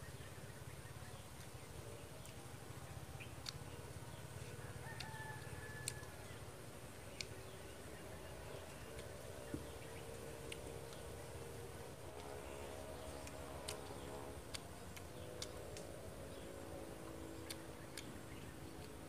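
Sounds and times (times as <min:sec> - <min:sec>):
distant birds calling: 0:00.0 - 0:19.0.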